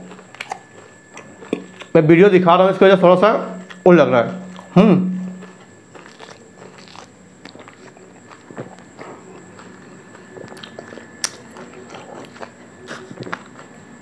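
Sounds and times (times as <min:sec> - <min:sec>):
chewing leaves: 0:03.6 - 0:14.0.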